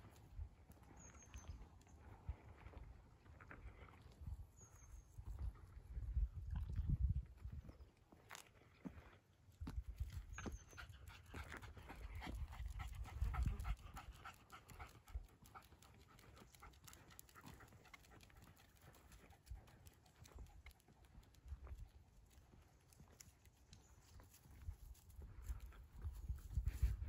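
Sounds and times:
light footsteps on a path: 0.0s - 27.0s
dog panting quickly: 10.6s - 21.8s.

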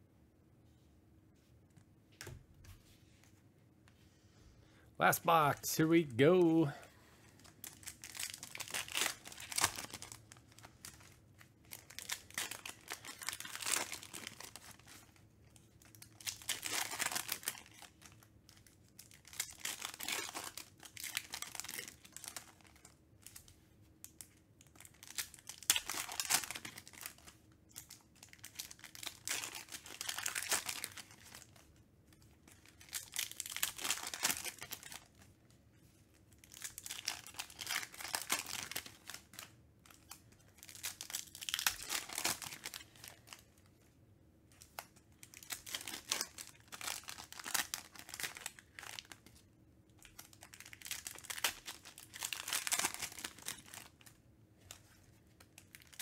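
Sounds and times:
foil wrappers torn and crinkled: 7.4s - 15.2s, 15.8s - 23.4s, 24.1s - 35.2s, 36.4s - 43.5s, 44.7s - 49.4s, 50.0s - 54.1s, 55.4s - 56.0s.

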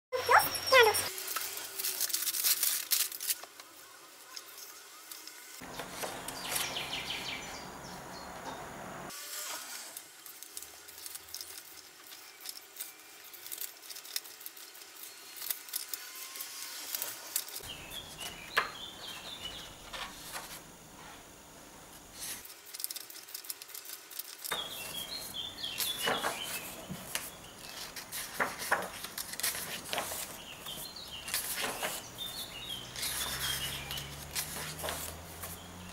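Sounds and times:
birds chirping faintly: 0.1s - 1.1s, 5.6s - 9.1s, 17.6s - 20.2s, 24.5s - 35.9s
hands leafing through paper pages: 0.2s - 7.1s, 9.7s - 20.7s, 22.2s - 35.9s.

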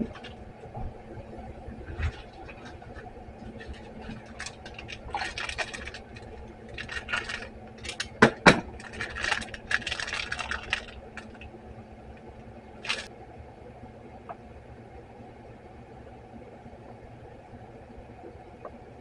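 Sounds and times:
plastic bag rustling and crinkling: 0.0s - 11.6s, 12.8s - 13.1s.

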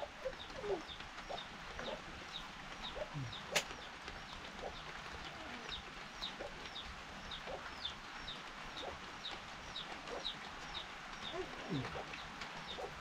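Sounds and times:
faint chicken clucks: 0.0s - 13.0s
chicks peeping: 5.6s - 13.0s.

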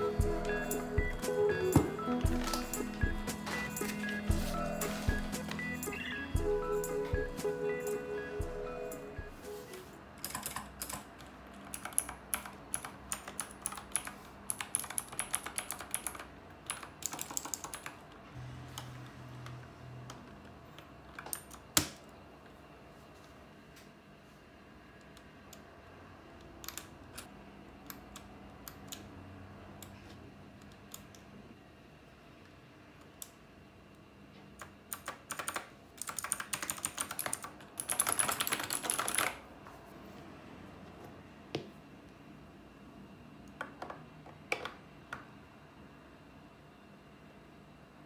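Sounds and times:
mechanical keyboard typing: 10.2s - 18.0s, 26.6s - 27.3s, 34.6s - 39.4s.

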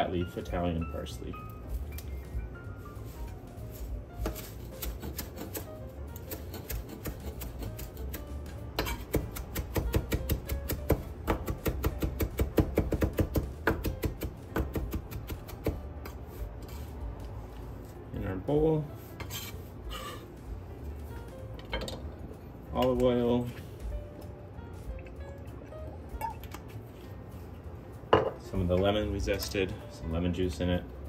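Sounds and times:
knife chopping on wooden board: 4.2s - 16.2s.

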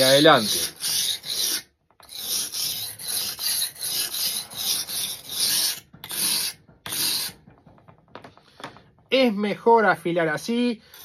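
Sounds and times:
knife scraping on whetstone: 0.0s - 7.4s.

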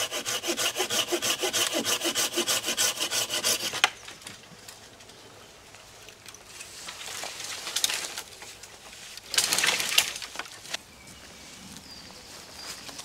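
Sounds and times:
leaves and twigs rustling: 3.8s - 13.0s.

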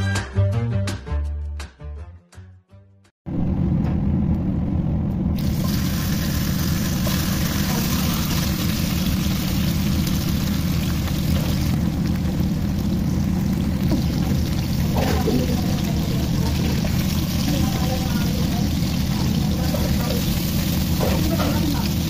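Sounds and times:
low rumble: 3.3s - 22.0s
chicken frying in oil: 5.4s - 22.0s.

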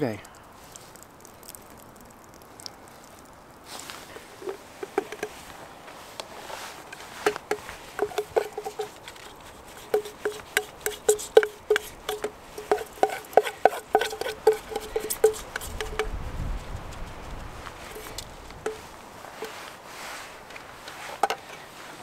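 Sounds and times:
spoon knocking on metal pot: 7.3s - 8.9s, 9.9s - 16.1s.

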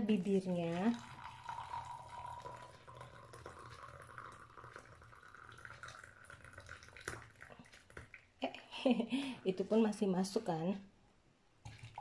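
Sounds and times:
liquid pouring into a glass jar: 0.0s - 8.4s, 11.6s - 12.0s.

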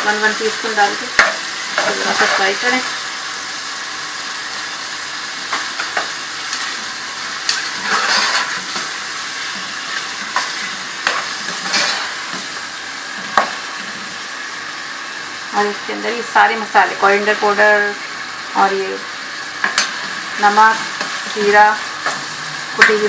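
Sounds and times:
onions sizzling in hot oil: 0.0s - 23.0s
spoon scraping against pan: 7.5s - 12.7s.

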